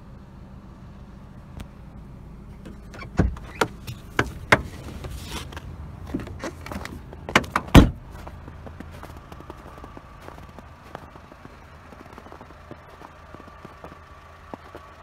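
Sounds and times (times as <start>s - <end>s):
engine idling hum: 0.0s - 15.0s
car door opening: 2.5s - 8.2s
car door slamming shut: 2.7s - 4.8s, 7.3s - 8.1s.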